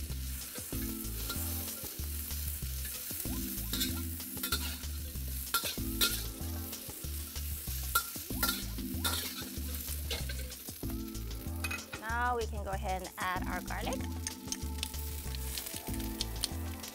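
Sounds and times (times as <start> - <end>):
pods sizzling in hot oil: 0.0 - 16.9
metal spatula scraping a wok: 0.2 - 10.8.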